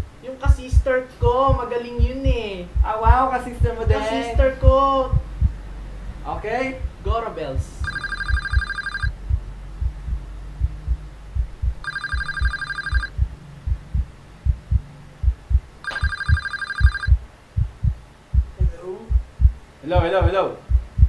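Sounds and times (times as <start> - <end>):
low pulsing beat: 0.0 - 21.0
telephone ringing: 7.8 - 9.1, 11.8 - 13.1, 15.8 - 17.2.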